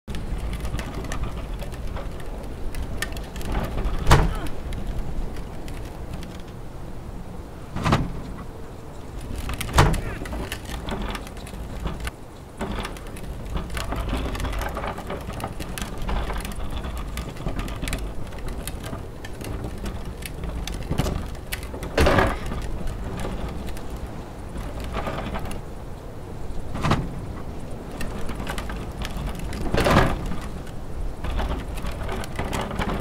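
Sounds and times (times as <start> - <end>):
bin wheels rattling over concrete: 0.1 - 6.6, 7.7 - 25.9, 26.6 - 33.0.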